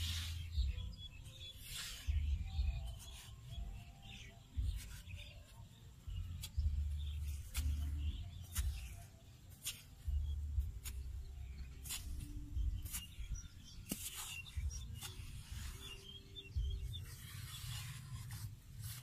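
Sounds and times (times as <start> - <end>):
hoe chopping into stony soil: 6.4 - 9.0, 9.6 - 15.4.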